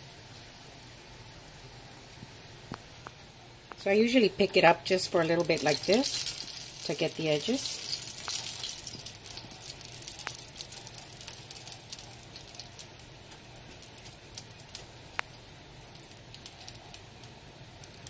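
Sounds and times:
oil sizzling in a skillet: 0:03.8 - 0:18.0.

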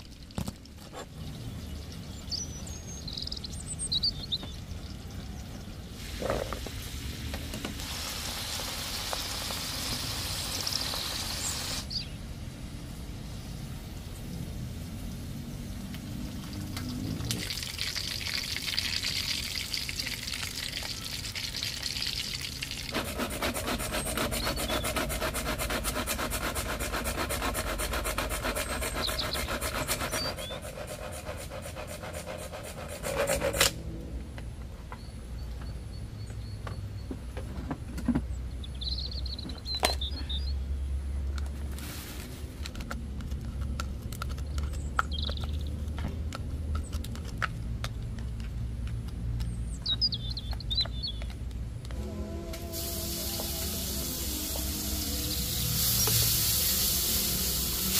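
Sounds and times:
birds chirping: 0:00.0 - 0:06.6, 0:10.2 - 0:12.3, 0:13.3 - 0:25.3, 0:27.6 - 0:33.5, 0:38.2 - 0:41.0, 0:44.5 - 0:45.9, 0:49.4 - 0:51.4, 0:54.8 - 0:56.3
steady hiss: 0:05.9 - 0:18.6, 0:52.0 - 0:57.9
food chopper motor whirring: 0:22.9 - 0:33.7, 0:52.0 - 0:57.9.

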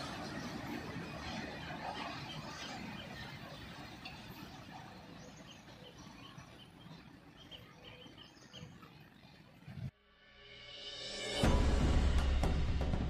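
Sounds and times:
freight train rumbling on rails: 0:00.0 - 0:08.1
small bird chirping: 0:02.1 - 0:09.6.

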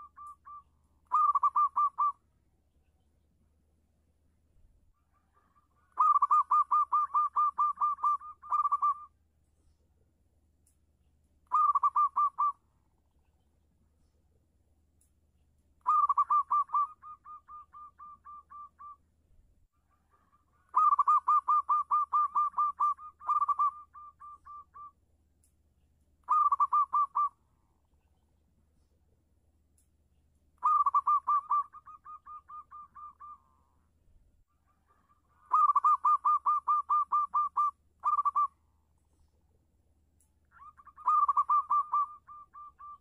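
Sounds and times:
dove cooing in staccato notes: 0:00.0 - 0:02.2, 0:05.0 - 0:09.1, 0:11.5 - 0:12.6, 0:15.8 - 0:18.9, 0:19.8 - 0:24.9, 0:26.2 - 0:27.3, 0:30.6 - 0:33.7, 0:34.5 - 0:38.5, 0:40.6 - 0:43.0.

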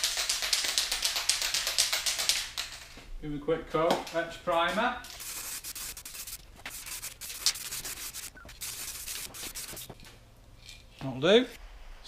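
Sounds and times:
aerosol can spraying: 0:05.1 - 0:10.0.

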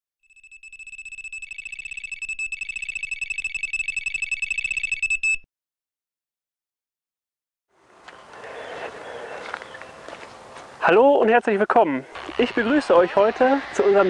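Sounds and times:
rapid high-pitched bite alarm beeps: 0:00.2 - 0:05.5.

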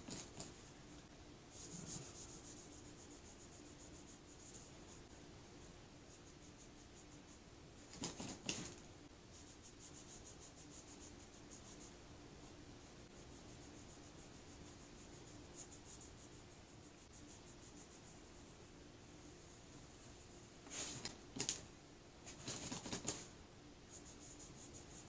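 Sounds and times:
cloth rag rubbing a tumbler: 0:01.5 - 0:05.1, 0:20.6 - 0:21.2.

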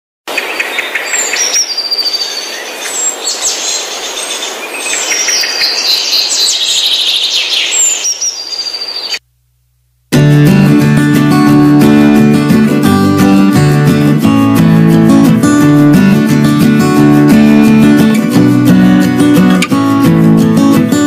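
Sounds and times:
small birds chirping: 0:00.3 - 0:09.2
acoustic guitar music: 0:10.1 - 0:21.0.

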